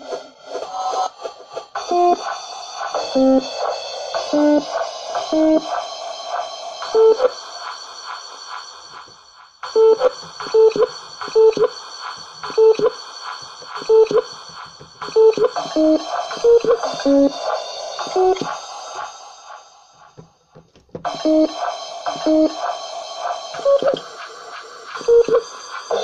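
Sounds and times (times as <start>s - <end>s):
clicky electronic percussion: 1.8s - 26.0s
beep-like electronic keyboard notes: 3.2s - 3.5s, 4.4s - 4.7s, 5.3s - 5.8s, 6.9s - 7.3s, 9.7s - 11.8s, 12.4s - 13.0s, 13.8s - 14.3s, 15.0s - 17.4s, 21.2s - 21.6s, 22.2s - 22.6s.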